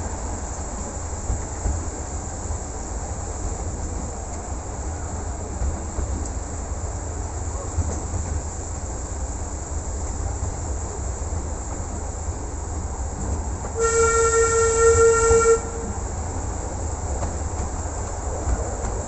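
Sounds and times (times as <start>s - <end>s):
low rumble of train running: 0.0s - 19.0s
steam locomotive whistle: 13.8s - 15.9s.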